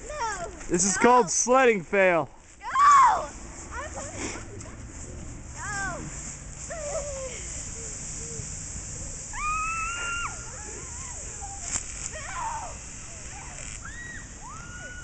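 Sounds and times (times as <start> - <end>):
steady rushing noise: 0.0 - 15.0
children yelling: 2.6 - 3.3, 9.2 - 15.0.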